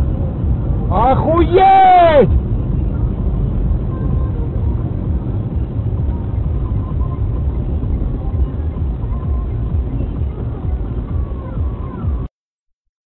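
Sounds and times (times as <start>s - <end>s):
car driving on slushy road: 0.0s - 12.3s.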